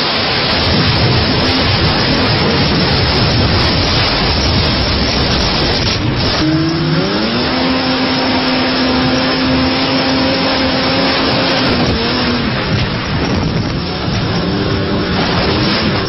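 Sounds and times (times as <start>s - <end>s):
boat engine at speed: 0.0s - 16.0s
rushing water: 0.0s - 16.0s
rushing wind: 0.0s - 16.0s.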